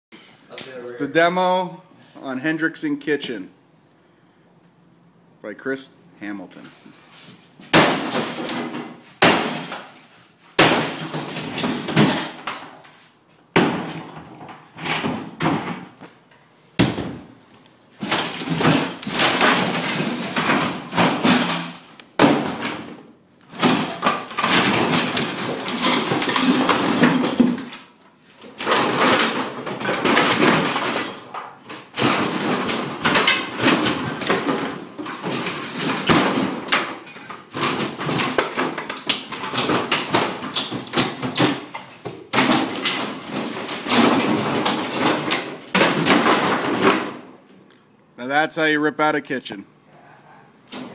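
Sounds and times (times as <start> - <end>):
heavy blows on cabinets: 13.5 - 16.0, 16.8 - 27.7.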